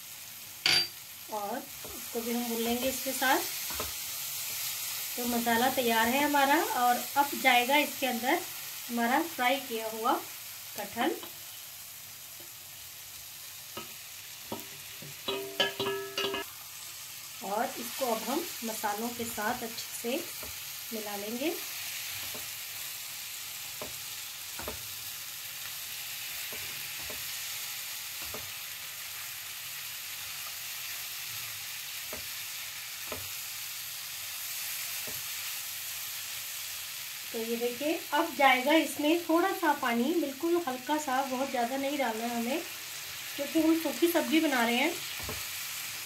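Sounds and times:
masala sizzling in a frying pan: 0:00.0 - 0:46.0
spatula knocking against pan: 0:13.8 - 0:16.5.

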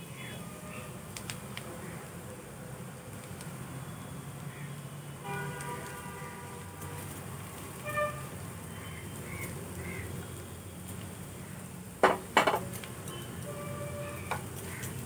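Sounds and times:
utensil knocks: 0:12.0 - 0:12.7.

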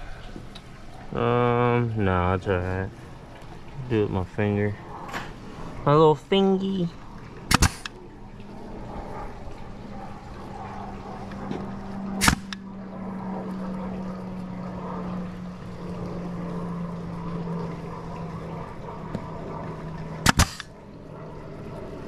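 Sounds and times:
steady low hum: 0:00.0 - 0:22.0
staple gun firing: 0:07.5 - 0:07.9, 0:12.2 - 0:12.6, 0:20.3 - 0:20.7.

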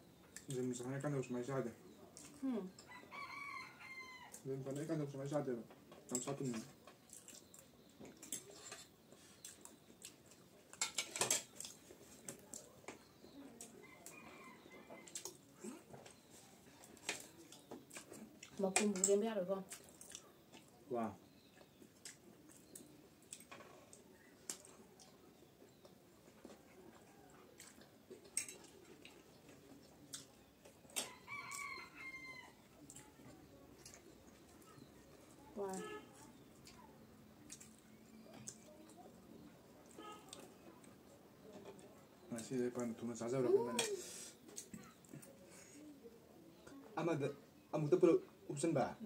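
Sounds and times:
rooster crowing: 0:02.9 - 0:04.4, 0:31.0 - 0:32.6
cutlery scraping on ceramic plates: 0:08.2 - 0:08.9, 0:10.8 - 0:11.7.

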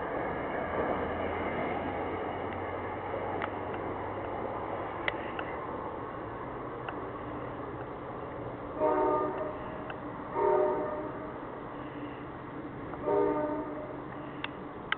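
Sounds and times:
train air horn blasts: 0:08.8 - 0:11.3, 0:13.0 - 0:14.4.

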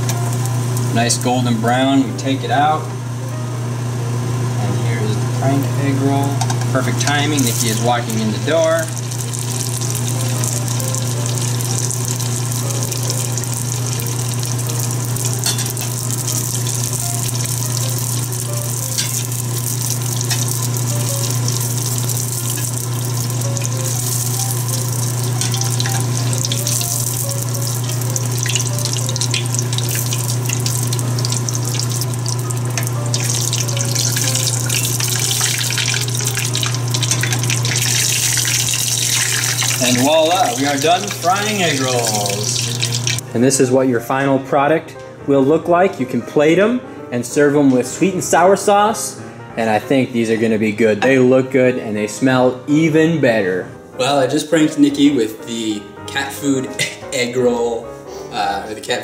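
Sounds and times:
deep-frying sizzle with crackles: 0:00.0 - 0:04.2, 0:05.4 - 0:43.2.

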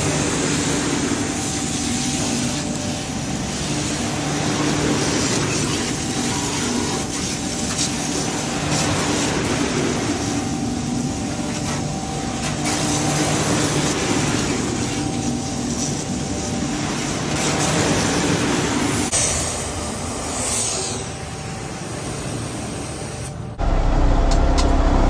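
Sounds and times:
hose spray hissing on metal: 0:00.1 - 0:21.2
truck humming: 0:23.3 - 0:25.0.

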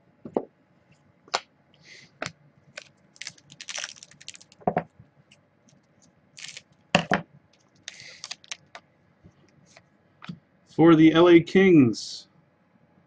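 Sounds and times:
cards clicking and wrappers rustling: 0:02.7 - 0:04.6, 0:06.4 - 0:06.6, 0:07.6 - 0:08.8.

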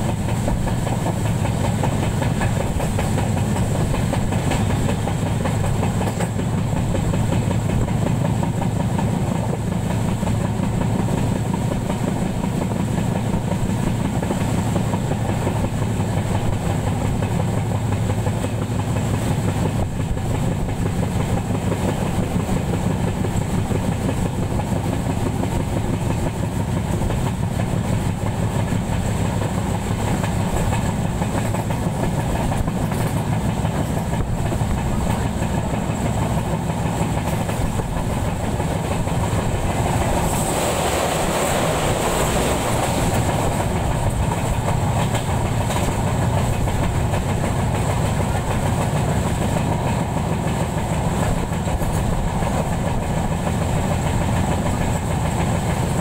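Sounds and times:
train wheels rumbling on rails: 0:00.0 - 0:56.0
rushing noise: 0:34.1 - 0:47.3.

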